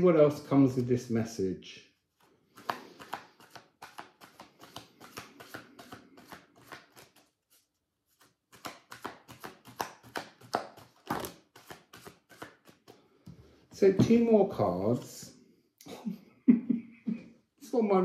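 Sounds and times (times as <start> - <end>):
cards being shuffled: 2.1 - 13.0.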